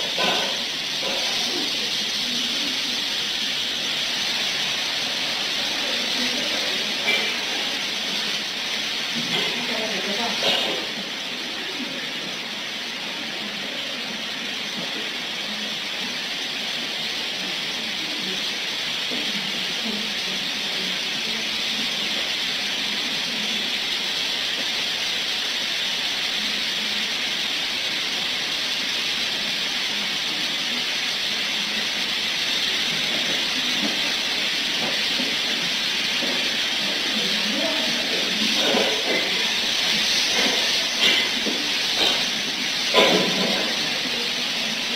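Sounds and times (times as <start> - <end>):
steady hiss of noise: 0.0 - 44.9.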